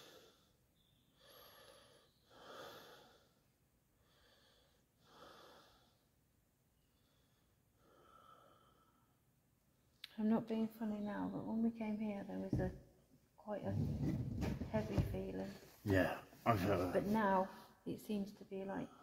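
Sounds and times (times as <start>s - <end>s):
soft breathing close to microphone: 6.9s - 9.2s.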